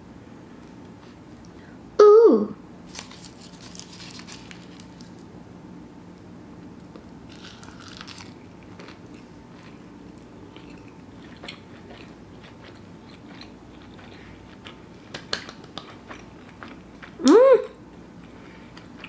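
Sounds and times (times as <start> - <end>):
person chewing food: 6.9 - 17.2.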